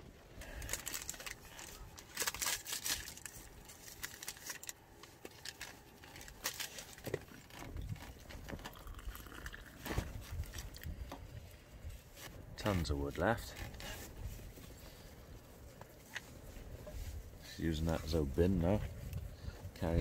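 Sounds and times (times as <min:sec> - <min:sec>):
sachet crinkling and tearing: 0:00.4 - 0:10.9
water poured into plastic mug: 0:08.6 - 0:09.9.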